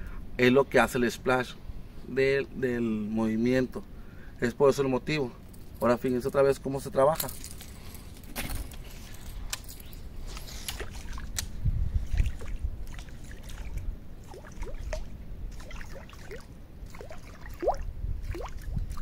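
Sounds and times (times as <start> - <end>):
lure popping and splashing on water: 10.4 - 19.0.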